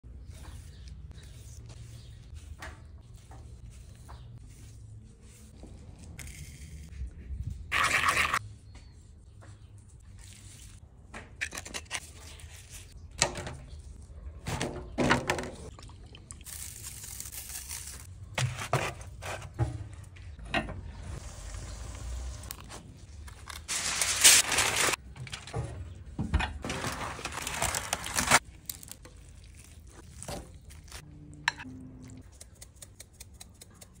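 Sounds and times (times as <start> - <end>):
cooking handling knocks and scrapes: 18.4 - 21.0
aluminium foil tray crinkling: 23.2 - 25.6, 26.6 - 31.0
wet meat handling in juices: 28.4 - 31.0.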